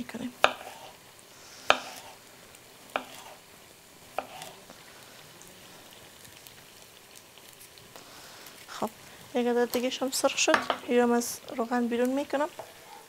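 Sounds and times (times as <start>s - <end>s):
faint sizzle of frying: 0.0s - 13.0s
knife slicing cucumber: 0.4s - 0.9s, 1.7s - 2.2s, 2.9s - 3.4s, 4.1s - 4.6s.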